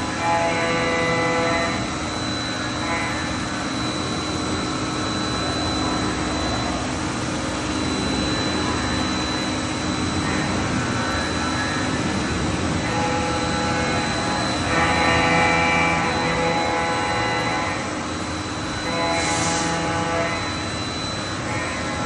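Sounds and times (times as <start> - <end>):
high-pitched whine: 0.0 - 22.0
machinery whooshing hum: 0.0 - 22.0.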